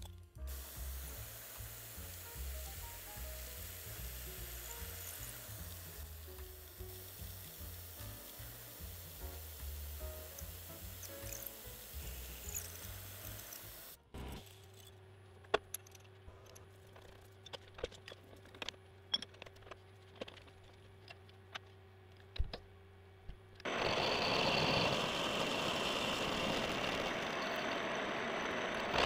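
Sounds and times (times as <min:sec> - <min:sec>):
end mill cutting metal: 0:00.5 - 0:14.0, 0:23.7 - 0:29.0.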